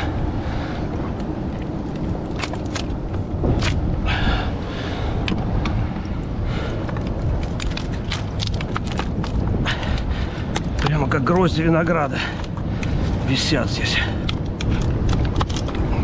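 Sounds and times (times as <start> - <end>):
wind buffeting microphone: 0.0 - 16.0
mussel shells clacking together: 6.8 - 10.9, 14.2 - 16.0.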